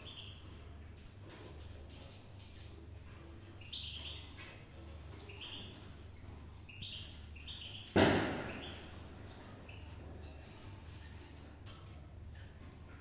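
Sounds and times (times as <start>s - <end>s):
sparrows chirping: 0.0s - 0.7s, 3.4s - 11.3s.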